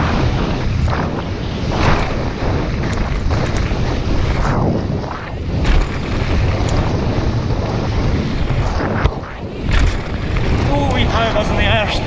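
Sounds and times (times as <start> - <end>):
wind buffeting microphone: 0.0 - 12.0
tyres rumbling on stones: 1.8 - 12.0
bike knocking on bumps: 1.9 - 4.4, 5.4 - 11.5.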